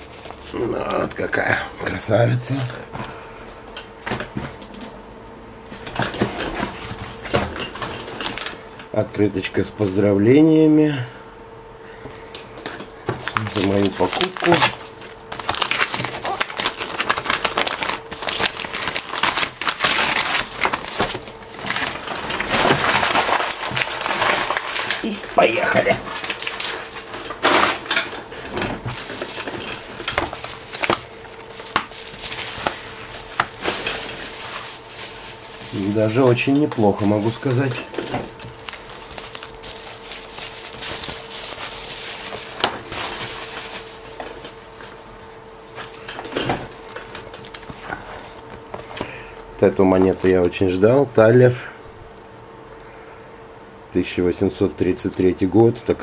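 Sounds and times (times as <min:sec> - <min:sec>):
plastic pages crinkling and rustling: 0:05.8 - 0:08.6, 0:13.1 - 0:45.0, 0:45.8 - 0:50.8
paper crumpling: 0:13.1 - 0:45.1, 0:45.7 - 0:50.4.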